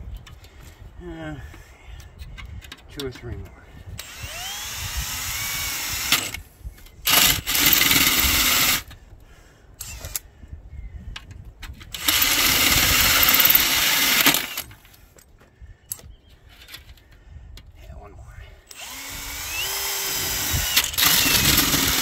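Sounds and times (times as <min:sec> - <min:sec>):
drill clicks: 0:03.9 - 0:09.0, 0:09.8 - 0:10.2, 0:11.8 - 0:15.0, 0:18.7 - 0:22.0
drill hole saw cutting steel: 0:04.0 - 0:06.4, 0:07.1 - 0:08.9, 0:12.0 - 0:14.7, 0:18.7 - 0:22.0.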